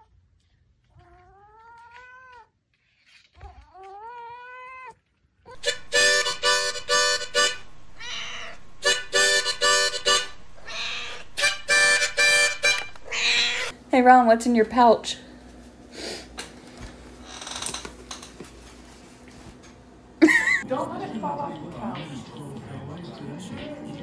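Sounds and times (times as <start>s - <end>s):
cat meowing: 0.9s - 2.5s, 3.4s - 5.6s, 8.0s - 8.6s, 10.6s - 11.6s, 13.0s - 13.7s
harmonica chords: 5.6s - 13.7s.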